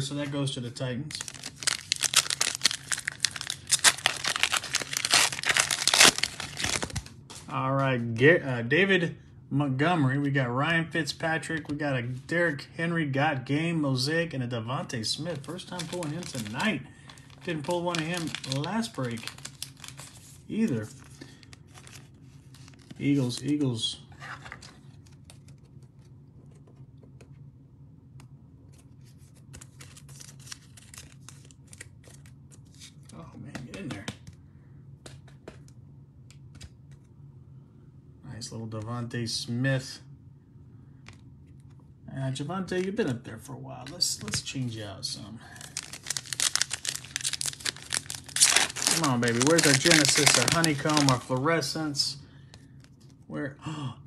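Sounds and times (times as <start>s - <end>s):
steady low hum: 0.0s - 54.0s
foil wrapper crackling and tearing: 1.1s - 7.1s, 15.4s - 20.4s, 45.5s - 51.7s.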